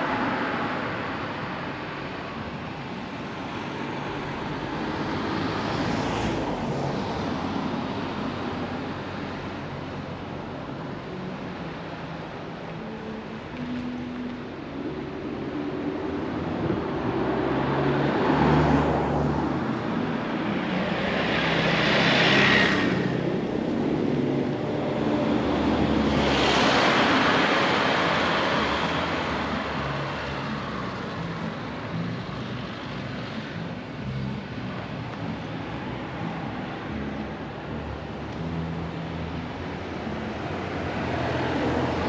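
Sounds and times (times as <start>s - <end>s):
vehicles passing on a road: 0.0s - 42.0s.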